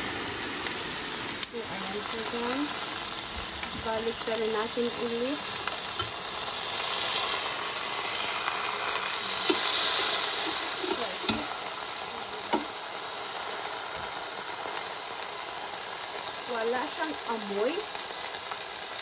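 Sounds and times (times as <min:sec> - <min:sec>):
steak sizzling on grill: 0:00.0 - 0:19.0.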